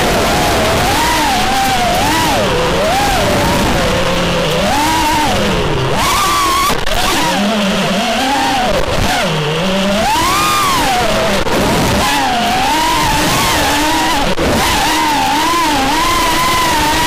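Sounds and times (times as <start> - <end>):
wind noise: 0.0 - 7.2
drone motors whining: 0.0 - 17.0.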